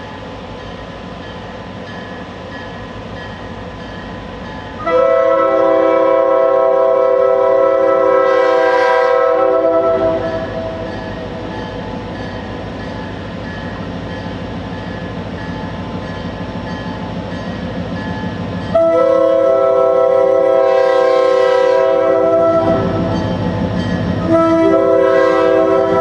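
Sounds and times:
crossing bell dinging: 0.0 - 5.6, 9.9 - 19.3, 22.2 - 26.0
train rumbling: 0.0 - 26.0
locomotive horn: 4.8 - 10.9, 18.7 - 23.1, 24.2 - 26.0.

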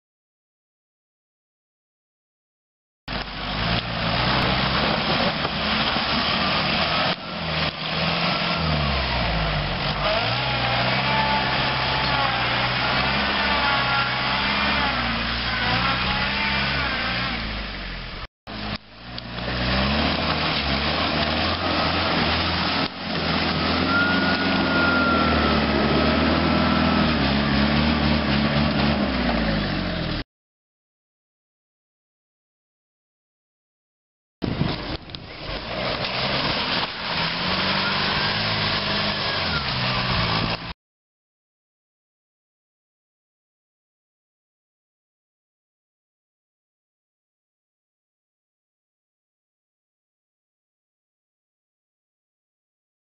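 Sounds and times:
diesel engine revving under load: 3.1 - 30.2, 34.5 - 40.8.

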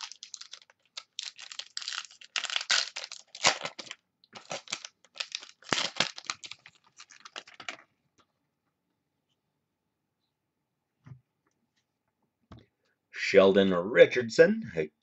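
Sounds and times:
foil wrapper tearing and crinkling: 0.0 - 7.8.

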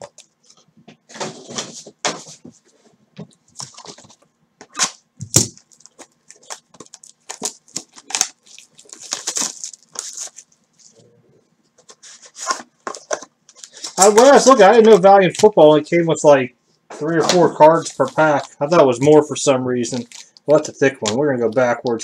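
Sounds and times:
card packs rustling and crinkling: 3.5 - 11.0, 11.8 - 15.6, 17.0 - 22.0.

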